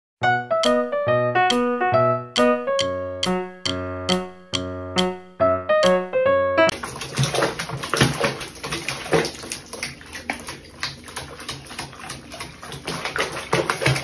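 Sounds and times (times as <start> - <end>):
water splashing in a basin: 6.7 - 14.0.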